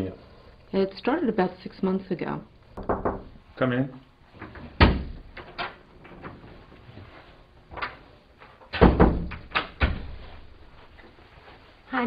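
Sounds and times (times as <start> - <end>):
soft knocks on door: 2.8 - 3.3.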